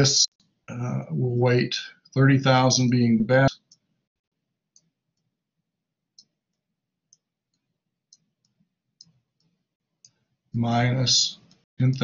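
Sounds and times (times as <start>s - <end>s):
stylus tapping tablet screen: 3.6s - 10.3s.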